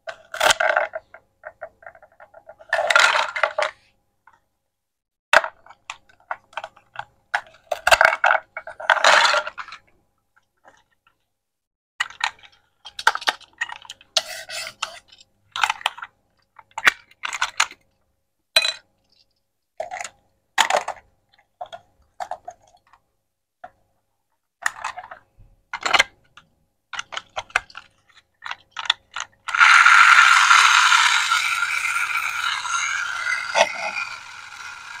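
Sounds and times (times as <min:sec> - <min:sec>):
plastic toy parts clattering: 0:00.0 - 0:04.4, 0:05.4 - 0:09.9, 0:12.0 - 0:17.8, 0:18.7 - 0:23.0, 0:24.6 - 0:35.0
toy motor whirring: 0:14.2 - 0:15.1, 0:29.5 - 0:35.0.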